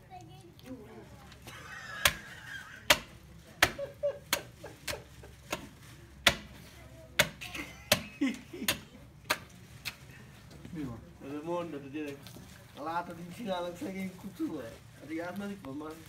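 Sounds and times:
cleaver chopping through bone: 2.9 - 4.5, 5.5 - 6.5, 7.2 - 8.1.

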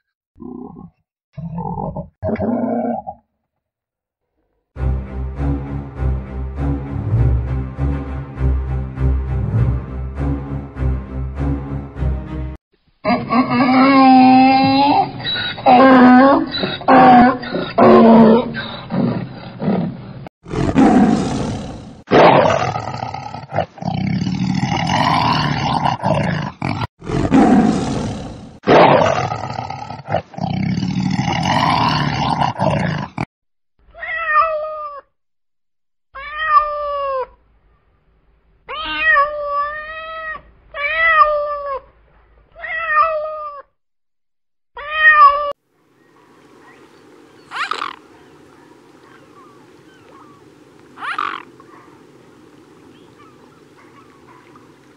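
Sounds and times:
donkey braying: 13.0 - 19.3, 47.4 - 52.1
cat meowing: 34.0 - 35.1, 36.2 - 37.4, 38.7 - 41.9, 42.6 - 43.7, 44.8 - 45.6, 47.5 - 48.0, 51.0 - 51.4.

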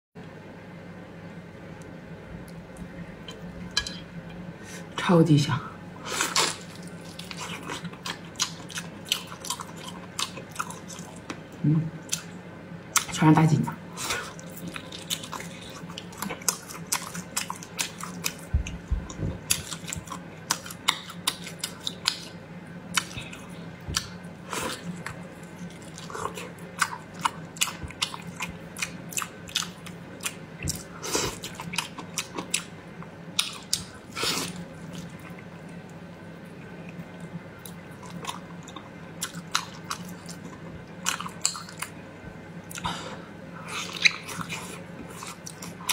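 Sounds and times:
person chewing meat: 6.3 - 11.5, 14.0 - 42.0, 42.6 - 43.0, 43.6 - 45.9.

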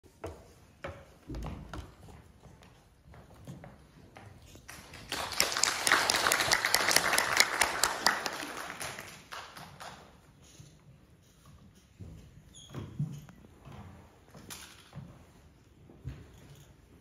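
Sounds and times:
footsteps on stage floor: 0.1 - 5.4
audience applauding: 4.7 - 10.2.

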